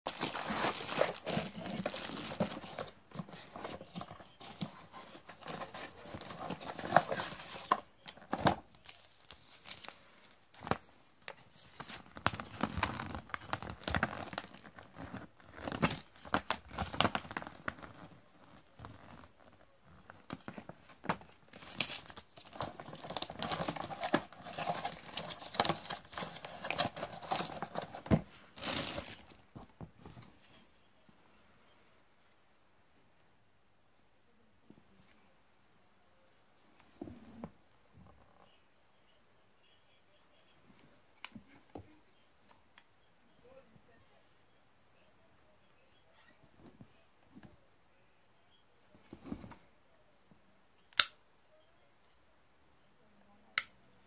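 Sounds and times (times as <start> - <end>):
plastic and paper crinkling: 0.1 - 30.5.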